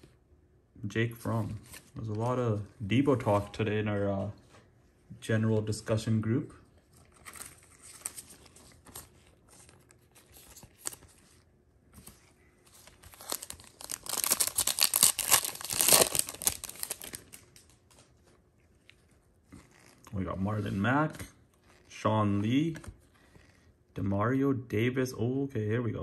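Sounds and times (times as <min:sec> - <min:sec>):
cards rustling: 0:06.8 - 0:23.6
foil wrapper tearing and crinkling: 0:12.8 - 0:17.8.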